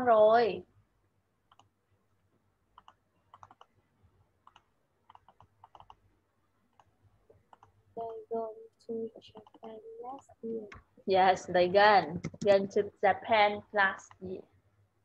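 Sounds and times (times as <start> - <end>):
typing on computer keyboard: 1.5 - 1.7, 2.8 - 3.7, 4.4 - 6.0, 9.4 - 10.8, 12.1 - 12.6
person speaking: 8.0 - 14.5.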